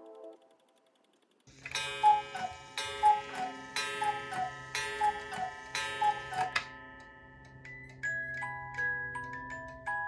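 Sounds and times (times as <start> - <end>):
clock mechanism click: 0.0 - 8.0
cuckoo clock calling: 1.4 - 10.0.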